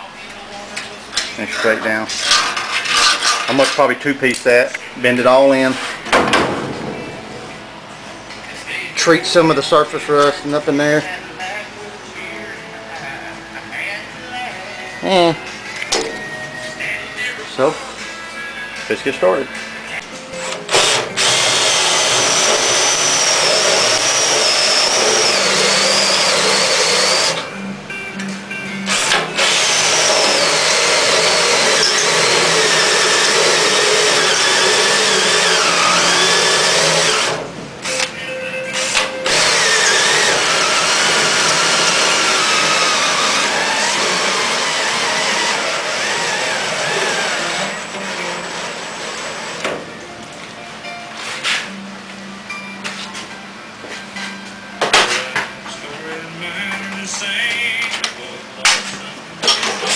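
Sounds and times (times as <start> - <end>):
cordless drill whining: 20.7 - 27.5, 28.9 - 38.1, 38.8 - 47.9.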